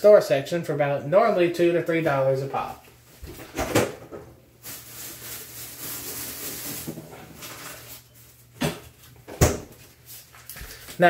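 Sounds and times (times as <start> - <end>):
plastic packaging crinkling: 4.6 - 8.5.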